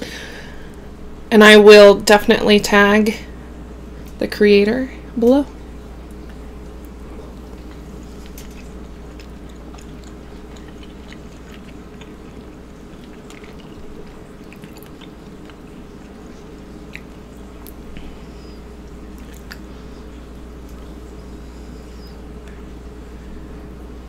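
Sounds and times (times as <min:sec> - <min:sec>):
steady low hum: 0:00.0 - 0:24.0
close chewing with wet mouth clicks: 0:07.3 - 0:18.2, 0:18.8 - 0:19.7.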